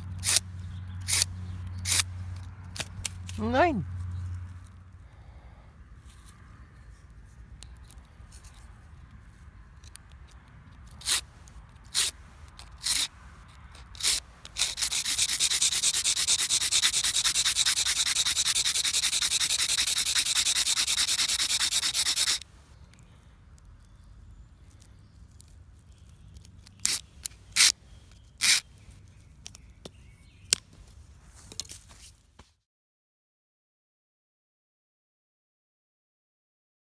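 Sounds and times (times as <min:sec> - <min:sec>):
firesteel scraping wood: 0:01.0 - 0:03.4, 0:10.8 - 0:22.4.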